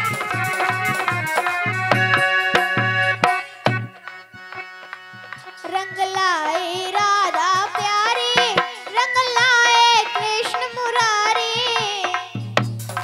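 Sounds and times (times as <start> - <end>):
hand drum steady beat: 0.0 - 4.1, 7.0 - 13.0
girl singing: 5.6 - 12.6.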